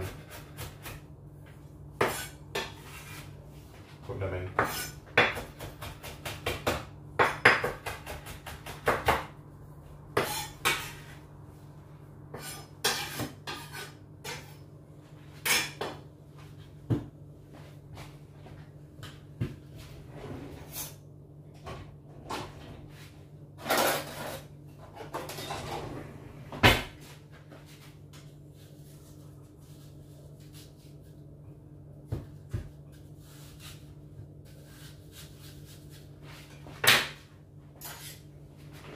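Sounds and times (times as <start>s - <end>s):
knife scraping board: 2.0s - 3.4s, 4.6s - 5.0s, 10.2s - 11.2s, 12.3s - 14.6s, 20.4s - 21.0s, 37.8s - 38.2s
knife chopping on wooden board: 4.5s - 9.4s.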